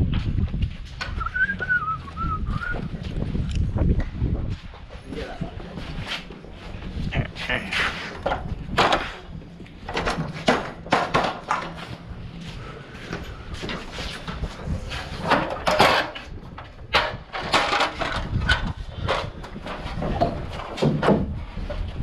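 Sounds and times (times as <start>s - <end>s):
carpentry knocks and thumps: 8.1s - 11.9s, 15.2s - 22.0s.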